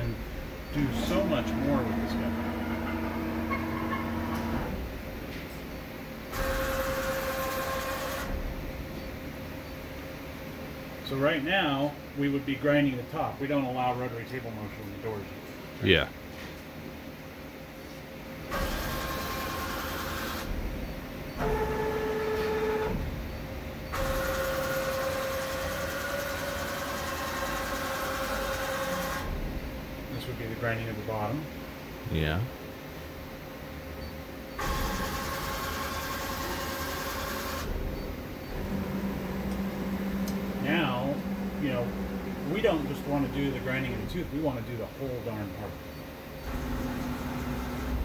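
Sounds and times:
steady motor whine: 0:00.0 - 0:05.1, 0:18.5 - 0:31.3, 0:34.6 - 0:45.3
low mechanical hum: 0:00.0 - 0:48.0.

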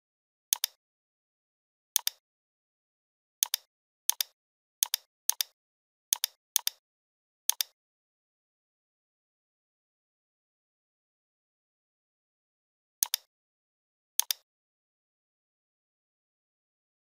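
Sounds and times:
computer mouse clicks: 0:00.5 - 0:00.8, 0:02.0 - 0:02.2, 0:03.4 - 0:06.8, 0:07.5 - 0:07.8, 0:13.0 - 0:13.3, 0:14.2 - 0:14.5.

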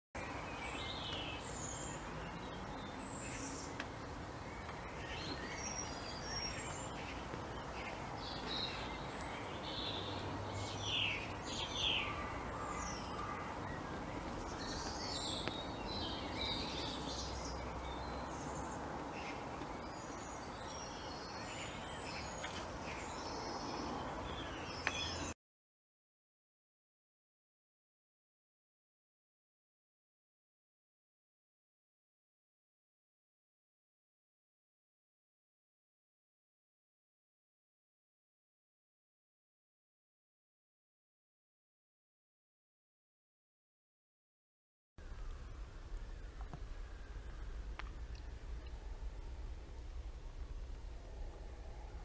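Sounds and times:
steady background hiss: 0:00.2 - 0:25.3
wild birds chirping and singing: 0:00.2 - 0:25.4, 0:45.0 - 0:52.0.

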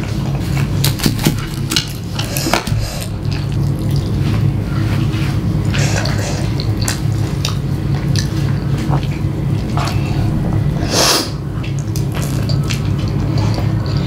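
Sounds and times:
steady low hum: 0:00.0 - 0:14.0
wet chewing and mouth smacks: 0:06.0 - 0:10.4.

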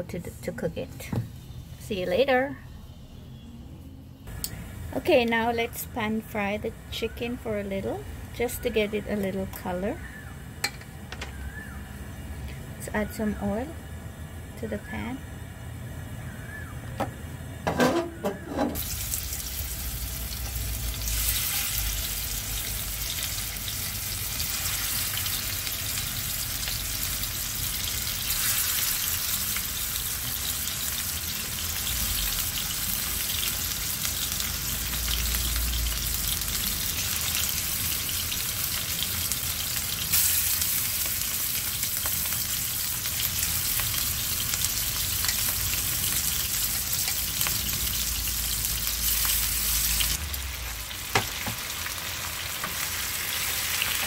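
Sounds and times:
chicken sizzling in hot oil: 0:18.0 - 0:54.0.

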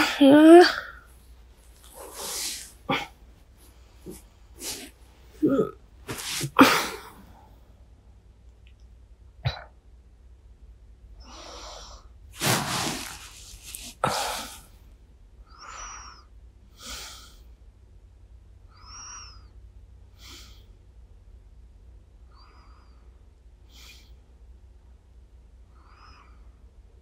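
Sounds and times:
woman breathing and sighing: 0:01.8 - 0:07.6, 0:11.2 - 0:14.7.

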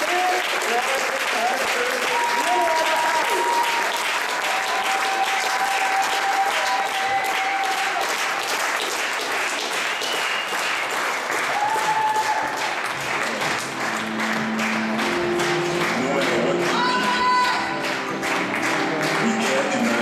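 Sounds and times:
audience applauding: 0:00.0 - 0:20.0
drawn-out cheers: 0:01.9 - 0:08.1, 0:11.5 - 0:12.6.

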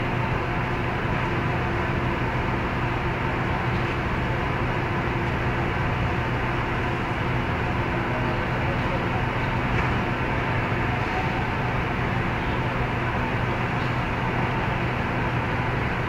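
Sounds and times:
mechanical hum and hiss: 0:00.0 - 0:16.0.

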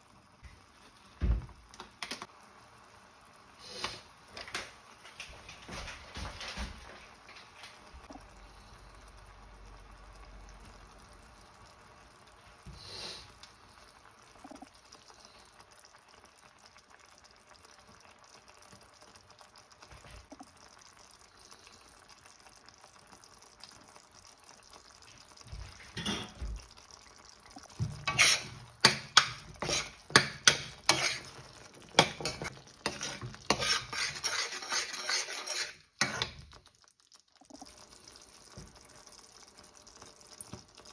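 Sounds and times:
spoon scraping metal pan: 0:28.0 - 0:36.5.

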